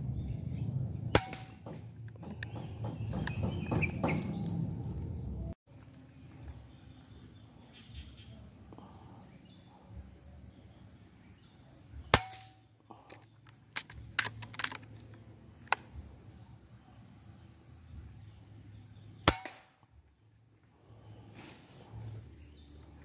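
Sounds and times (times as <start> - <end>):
silenced air rifle shot: 1.1 - 4.5, 12.1 - 12.7, 19.2 - 19.8
sharp clicks: 13.1 - 14.9.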